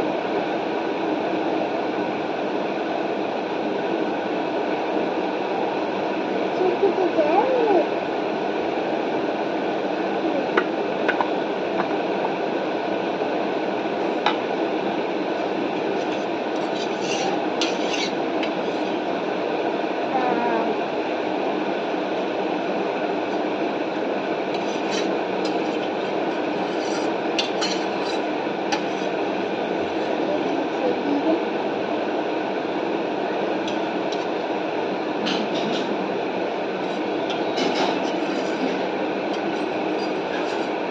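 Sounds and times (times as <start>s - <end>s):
metal fork scraping foil packet: 16.0s - 19.0s, 24.6s - 28.2s.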